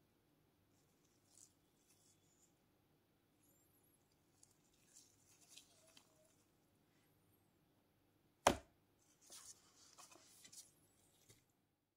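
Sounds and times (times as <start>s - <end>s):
gloved hands rustling: 0.8s - 2.6s, 4.0s - 6.6s, 9.0s - 11.5s.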